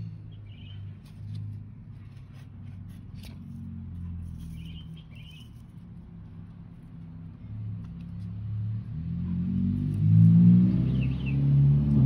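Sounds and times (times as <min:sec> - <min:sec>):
bird chirping: 0:00.0 - 0:01.3, 0:04.3 - 0:05.8, 0:10.8 - 0:11.6.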